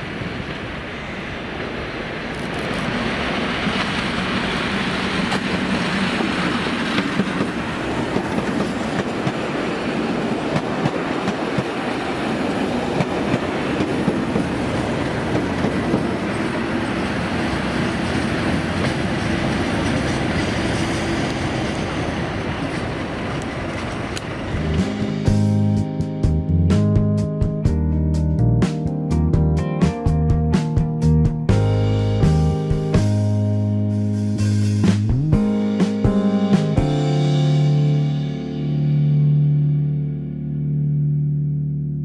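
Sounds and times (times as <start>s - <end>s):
diesel locomotive engines running: 0.0s - 25.8s
wheels clicking over rail joints: 2.3s - 24.8s.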